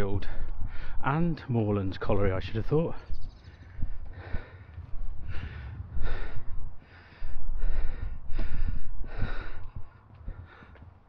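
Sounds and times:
man breathing heavily: 0:00.1 - 0:01.0, 0:03.5 - 0:11.0
low rumble: 0:03.3 - 0:10.6.

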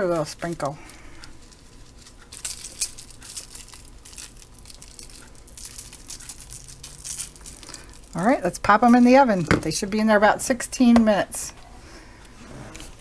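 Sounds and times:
grated cheese pattering on paper: 0:00.0 - 0:09.4.

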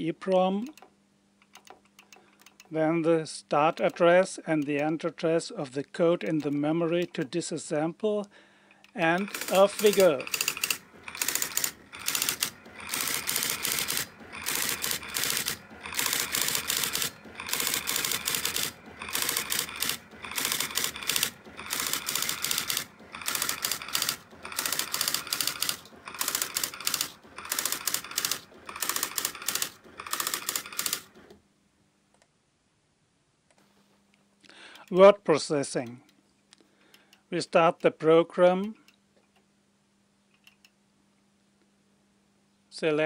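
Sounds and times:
electronic typewriter type strikes: 0:06.2 - 0:07.3, 0:08.9 - 0:31.3.

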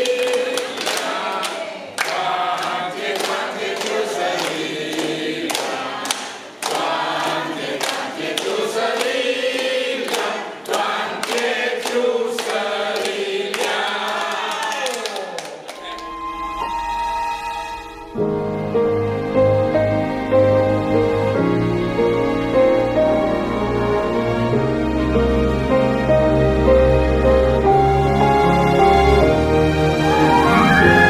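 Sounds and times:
group singing: 0:00.0 - 0:14.8, 0:29.9 - 0:31.0
people clapping in time: 0:00.0 - 0:17.7.

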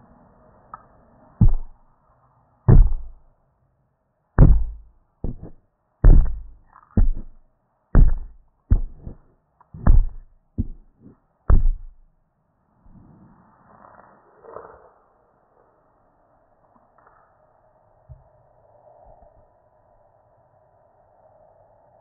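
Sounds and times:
heavy thumps: 0:01.4 - 0:01.8, 0:02.7 - 0:03.2, 0:04.4 - 0:07.4, 0:08.0 - 0:09.2, 0:09.8 - 0:10.9, 0:11.5 - 0:12.1.

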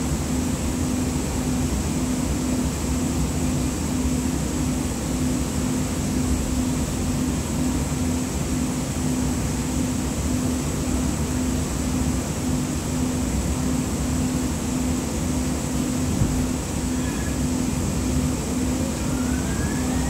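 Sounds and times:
faint high whine: 0:16.6 - 0:20.0.

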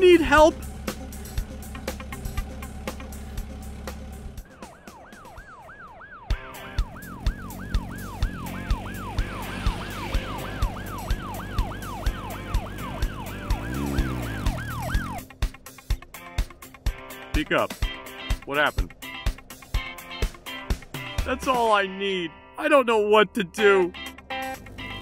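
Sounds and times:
police siren wailing: 0:04.4 - 0:15.4
music with steady beat: 0:15.1 - 0:21.6.

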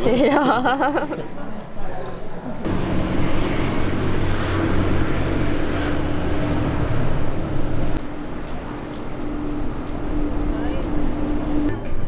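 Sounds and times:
street traffic rumble: 0:02.4 - 0:12.0.

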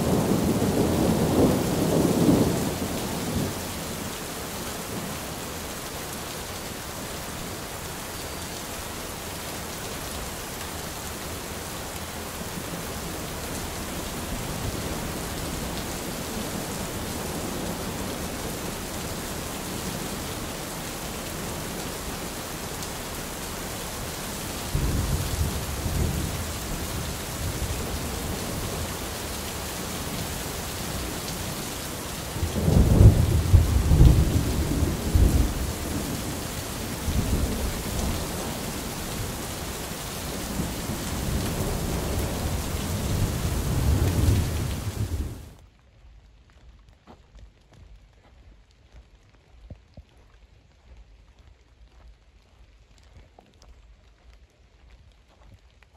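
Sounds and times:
low rumbling thunder: 0:00.0 - 0:03.8, 0:24.6 - 0:29.0, 0:32.1 - 0:39.5, 0:40.2 - 0:45.6
steady rain: 0:00.0 - 0:55.9.

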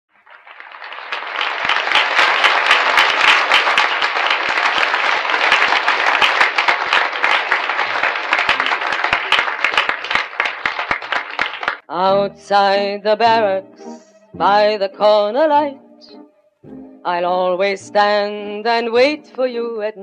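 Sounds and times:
audience applause: 0:00.1 - 0:11.8.

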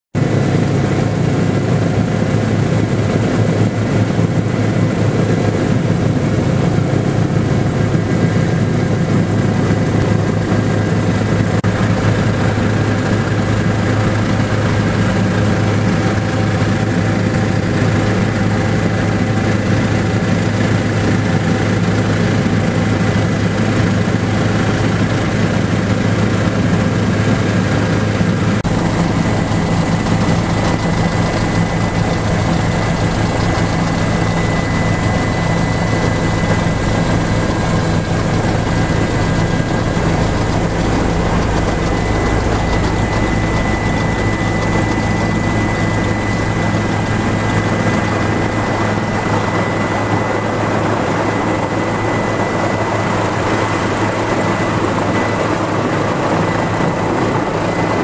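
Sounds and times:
helicopter rotor and engine drone: 0:00.2 - 0:58.0
thin high whine: 0:28.6 - 0:58.0.

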